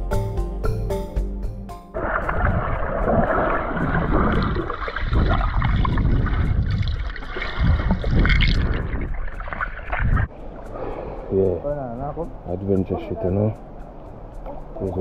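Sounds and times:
rushing river water: 2.0 - 11.4
low rumble: 2.0 - 12.5.

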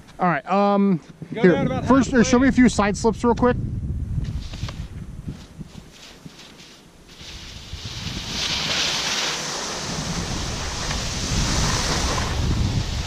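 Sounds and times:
wind buffeting microphone: 1.1 - 6.4, 7.0 - 13.0
skis scraping over snow: 4.3 - 13.0.

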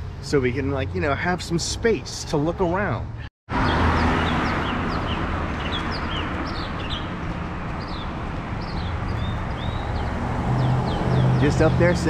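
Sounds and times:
city traffic: 0.0 - 12.0
songbird chirping: 3.6 - 12.0.

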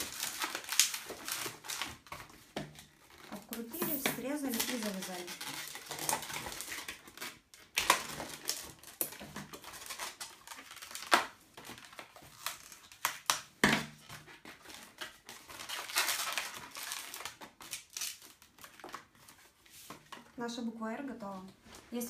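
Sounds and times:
balloon squeaking and rubbing: 2.9 - 6.8.

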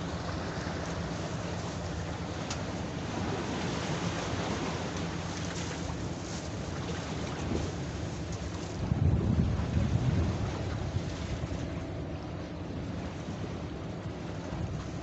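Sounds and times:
boat engine droning: 0.0 - 15.0
waves and water: 0.0 - 15.0
wind buffeting microphone: 7.1 - 15.0.

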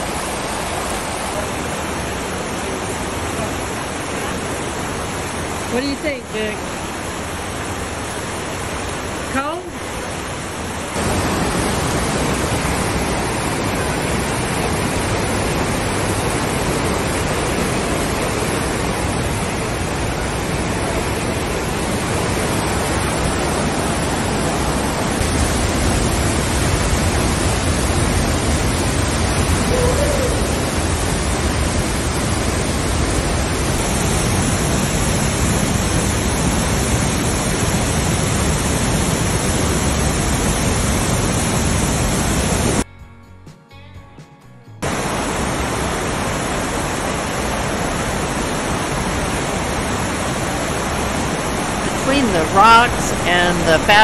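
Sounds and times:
creek rushing over rocks: 0.0 - 27.5, 44.8 - 54.0.

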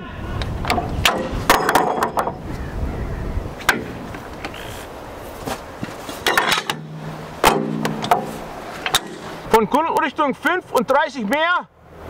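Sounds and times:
metal clanks of breech loading: 6.2 - 9.4.

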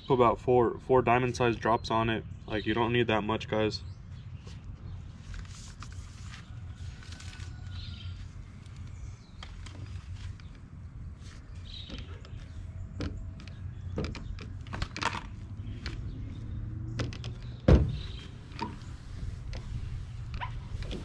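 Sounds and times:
loud thump: 17.7 - 18.2.

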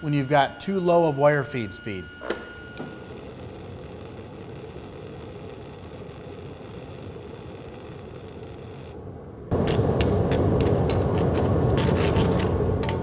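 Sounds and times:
welding arc burning: 2.8 - 9.0.

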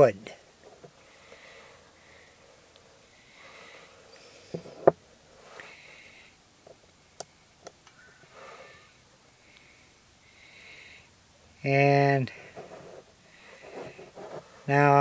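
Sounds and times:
soft sniffing breaths: 0.3 - 6.4, 8.2 - 11.2, 12.3 - 14.8.

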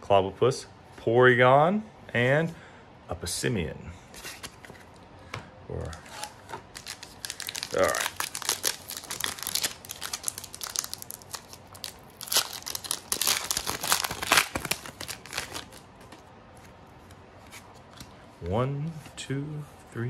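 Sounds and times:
foil wrapper crinkling and tearing: 5.9 - 16.1.

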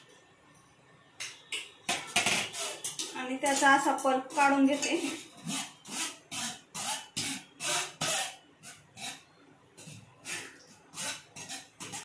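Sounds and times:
spoon scraping pulp through sieve: 2.4 - 3.2, 4.2 - 12.0.

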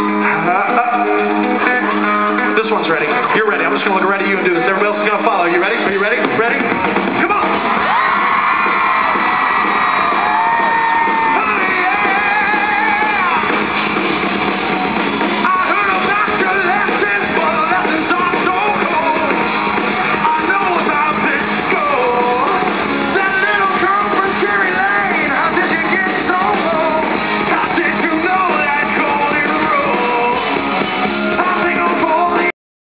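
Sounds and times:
man singing: 0.0 - 6.6, 10.8 - 13.5, 15.4 - 19.5, 20.1 - 30.6, 31.2 - 32.5
drums: 0.0 - 32.5
electric guitars: 0.0 - 32.5.

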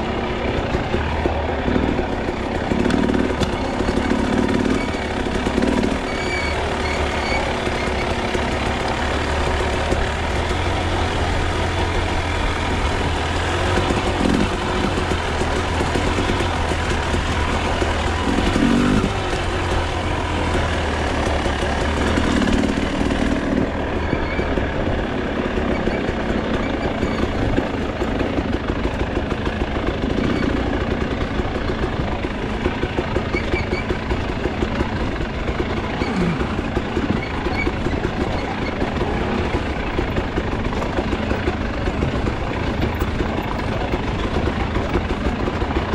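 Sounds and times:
bike rattling: 0.0 - 45.9
dirt bike engine running: 0.0 - 45.9.

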